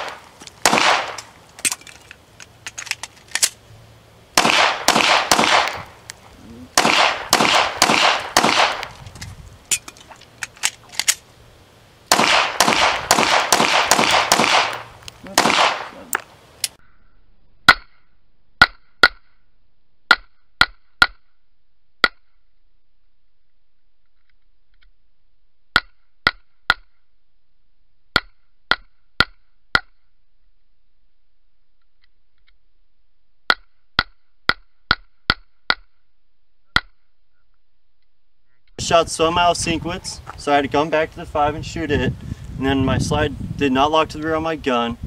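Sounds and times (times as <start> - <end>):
pistol shots echoing: 0.0 - 1.3, 4.4 - 5.9, 6.8 - 9.0, 12.1 - 16.0.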